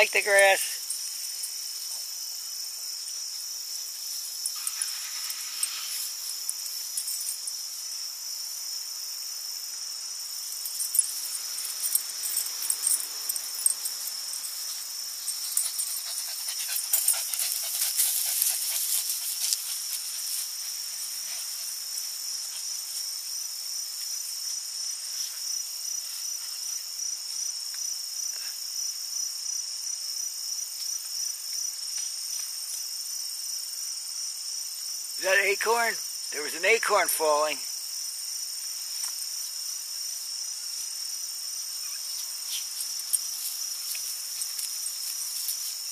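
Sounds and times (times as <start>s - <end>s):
high-pitched insect chorus: 0.0s - 45.9s
crackles and rustles: 10.5s - 23.3s, 41.8s - 45.9s.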